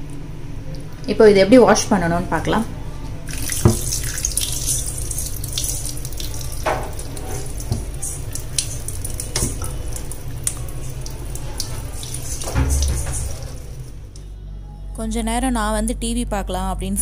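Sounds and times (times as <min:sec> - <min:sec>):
tap running into sink: 0:03.3 - 0:13.8
splashes and knocks: 0:03.5 - 0:04.2, 0:11.6 - 0:13.6.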